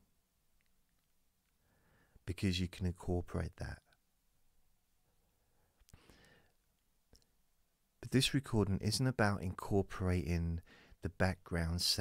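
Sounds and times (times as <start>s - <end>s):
soft breath: 1.6s - 2.2s, 5.3s - 6.7s, 10.6s - 11.0s.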